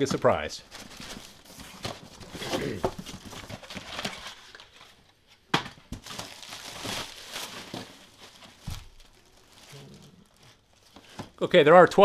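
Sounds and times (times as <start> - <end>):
cardboard flaps rustling and scraping: 0.1 - 5.0.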